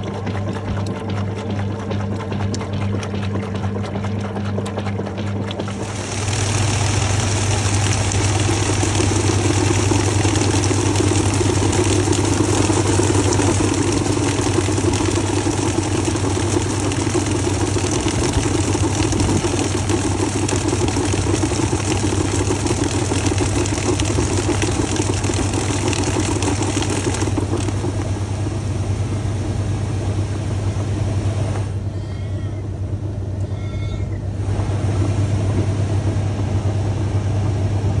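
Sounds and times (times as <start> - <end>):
laundry churning: 0.0 - 31.5, 34.3 - 38.0
washing machine motor hum: 0.0 - 38.0
water spraying into tub: 5.1 - 28.5.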